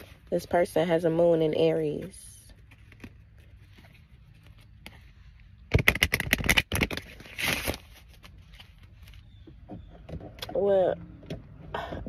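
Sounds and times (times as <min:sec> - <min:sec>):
sharp clicks and rattles: 0:05.7 - 0:07.2.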